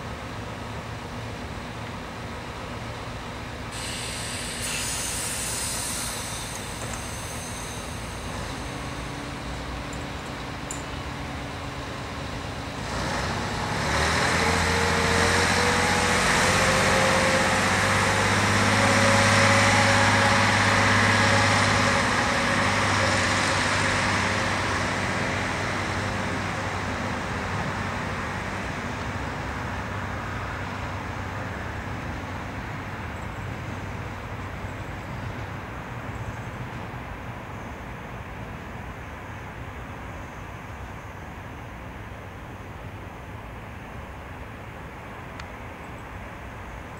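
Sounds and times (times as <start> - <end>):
diesel railcar engine revving: 0.0 - 37.9
rising whine: 3.9 - 12.3.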